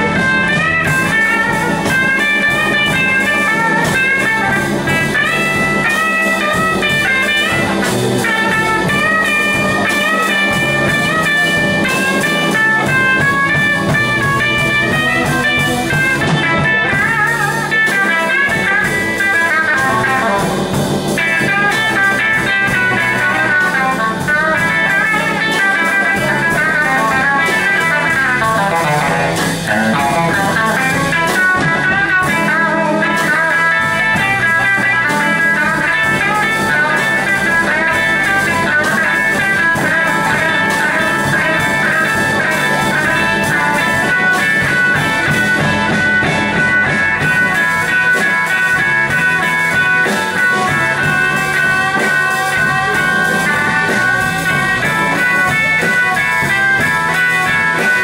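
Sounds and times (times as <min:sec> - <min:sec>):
band with drums: 0:00.0 - 0:58.0
electric guitar blues solo: 0:00.0 - 0:58.0.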